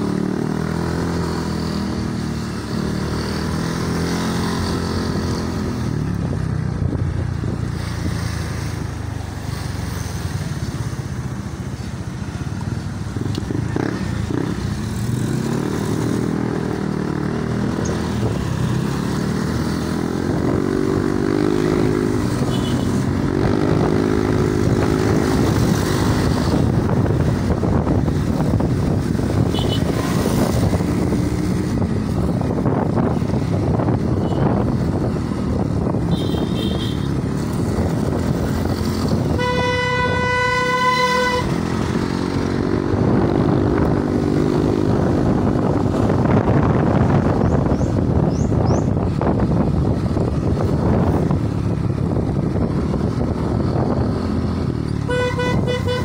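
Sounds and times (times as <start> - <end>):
road noise: 0.0 - 56.0
vehicle horn blast: 22.4 - 22.9, 29.5 - 29.9, 34.2 - 34.6, 36.1 - 37.1, 39.3 - 41.7, 55.0 - 56.0.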